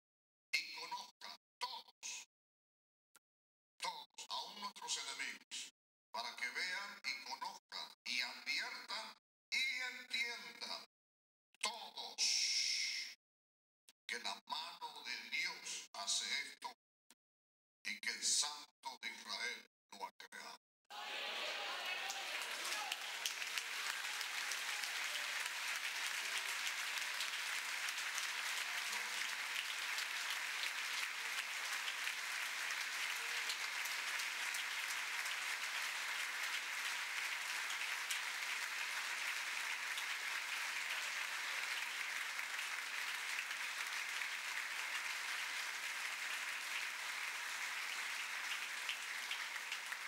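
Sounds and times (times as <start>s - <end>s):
crowd applauding: 20.9s - 50.0s.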